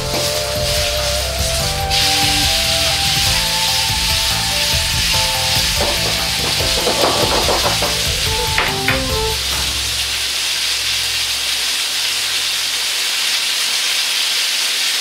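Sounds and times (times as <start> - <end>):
chicken sizzling in oil: 0.0 - 15.0.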